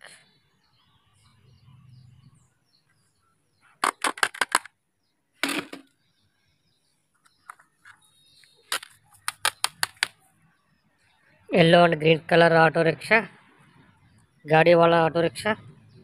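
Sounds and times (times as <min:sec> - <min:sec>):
plastic toy vehicles clicking: 0:03.8 - 0:04.8, 0:07.4 - 0:10.3.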